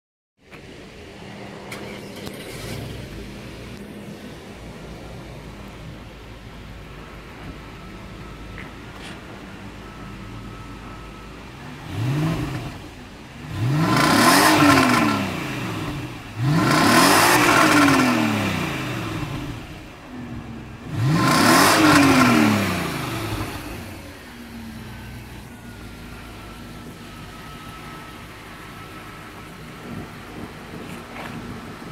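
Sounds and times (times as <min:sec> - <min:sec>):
car engine revving: 0:01.2 - 0:06.0, 0:11.4 - 0:31.9.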